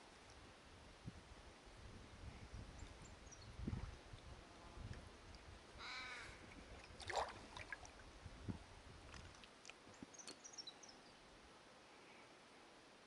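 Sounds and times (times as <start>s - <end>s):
crow cawing: 5.8s - 6.4s.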